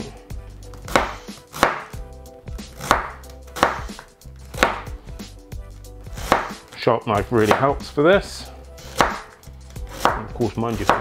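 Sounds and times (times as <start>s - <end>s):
knife slicing cabbage on board: 0.7s - 2.0s, 2.7s - 4.9s, 6.1s - 6.8s, 8.8s - 11.0s.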